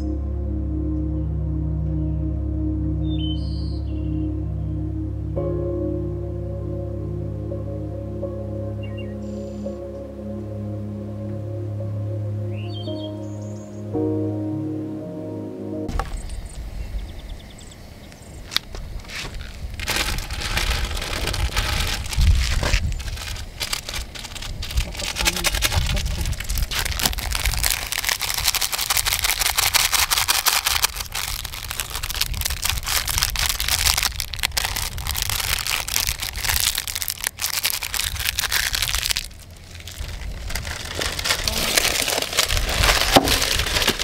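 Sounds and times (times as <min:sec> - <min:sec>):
broth crackling and sizzling: 0:18.6 - 0:44.0
seasoning packet crinkling: 0:19.2 - 0:44.0.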